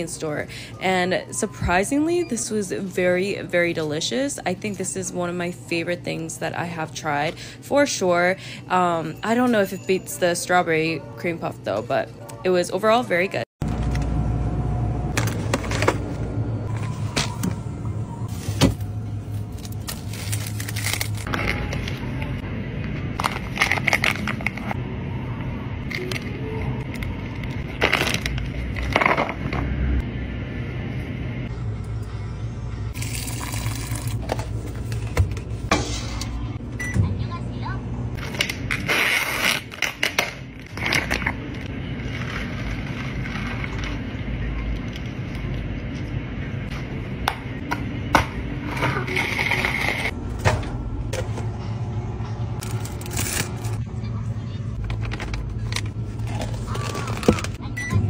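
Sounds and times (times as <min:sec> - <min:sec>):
steady low hum: 0:13.6 - 0:58.0
drink pouring over ice: 0:33.0 - 0:34.2.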